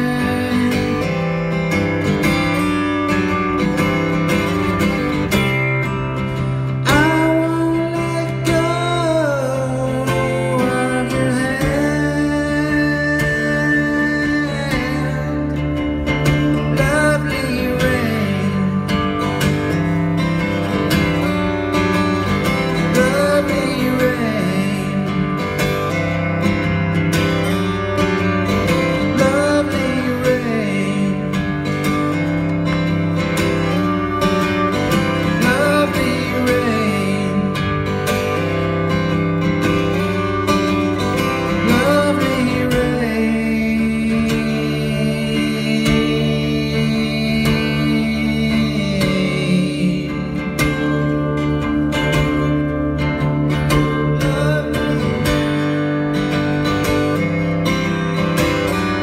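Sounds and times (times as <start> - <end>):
man singing into a microphone: 0.0 - 1.5, 6.8 - 19.4, 22.7 - 25.5, 28.6 - 31.8, 35.0 - 38.0, 41.2 - 52.5, 53.5 - 55.7
acoustic guitar: 0.0 - 59.0.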